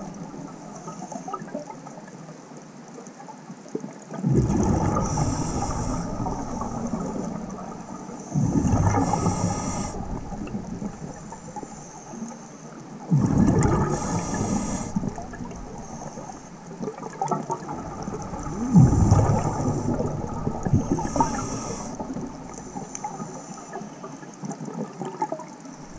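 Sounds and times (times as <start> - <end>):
exhaled bubbles gushing: 4.1 - 12.4, 13.0 - 25.9
regulator air hiss: 5.0 - 12.8, 13.9 - 16.8, 18.3 - 24.0.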